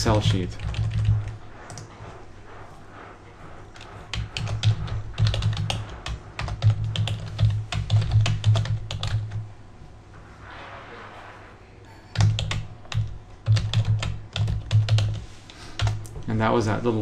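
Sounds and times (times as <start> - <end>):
computer keyboard typing: 0.0 - 2.0, 3.8 - 9.5, 12.1 - 16.1.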